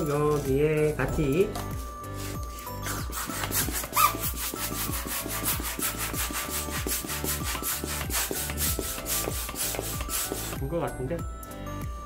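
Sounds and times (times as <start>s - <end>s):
hand balloon pump strokes: 1.7s - 10.7s.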